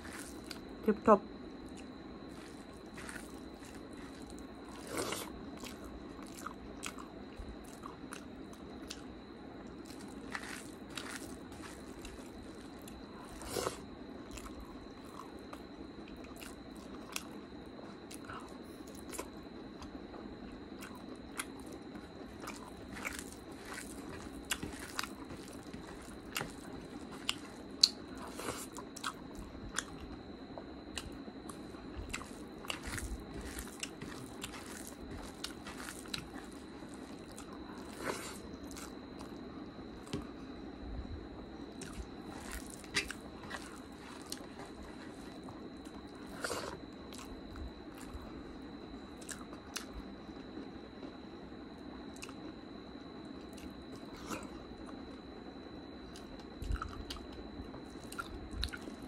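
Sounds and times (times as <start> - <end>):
wet chewing and mouth smacks: 1.6 - 17.4, 20.8 - 30.2, 30.9 - 39.4, 41.7 - 48.3, 49.2 - 50.0, 52.1 - 52.4, 56.1 - 59.0.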